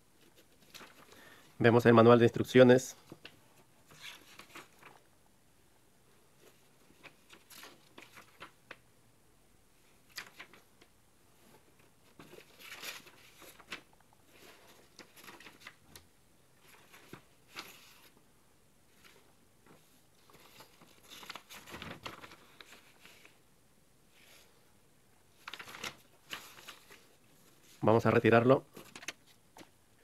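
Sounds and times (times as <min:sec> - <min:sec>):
pages of paper turning: 0:00.2 - 0:01.2, 0:03.1 - 0:05.0, 0:06.4 - 0:08.8, 0:10.1 - 0:16.0, 0:16.6 - 0:18.2, 0:18.9 - 0:23.4, 0:25.3 - 0:29.7.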